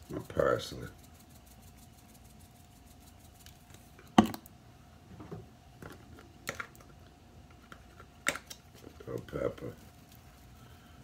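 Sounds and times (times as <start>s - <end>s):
faint steady hum: 0.0s - 11.0s
spice containers clicking and knocking: 5.8s - 6.9s, 7.5s - 9.3s.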